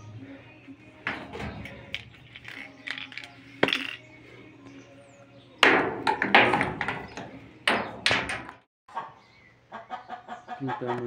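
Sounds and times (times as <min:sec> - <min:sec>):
knocks and clanks on steel: 0:01.0 - 0:04.0, 0:05.6 - 0:08.7.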